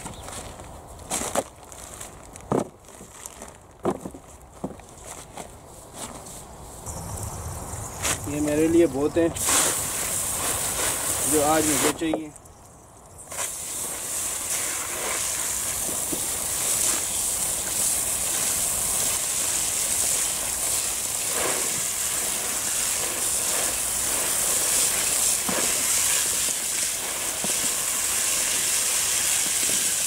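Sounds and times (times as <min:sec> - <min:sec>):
hose spray hissing onto water: 0:08.1 - 0:12.2, 0:13.3 - 0:30.0.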